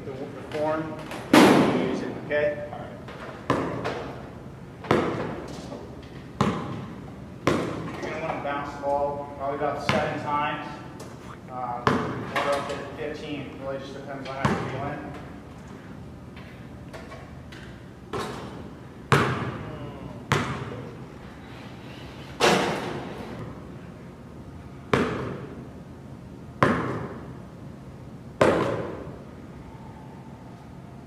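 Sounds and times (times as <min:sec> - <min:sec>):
basketball bouncing in gym: 0:03.1 - 0:04.2, 0:04.8 - 0:08.4, 0:09.8 - 0:10.3, 0:11.7 - 0:12.5, 0:14.3 - 0:15.2, 0:17.6 - 0:20.9, 0:22.4 - 0:23.6, 0:24.9 - 0:25.7, 0:26.6 - 0:27.4, 0:28.4 - 0:29.2.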